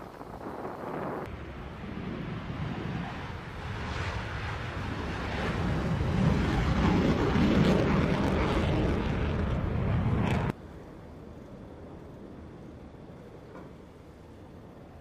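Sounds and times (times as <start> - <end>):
jet roaring past: 0.1 - 10.6.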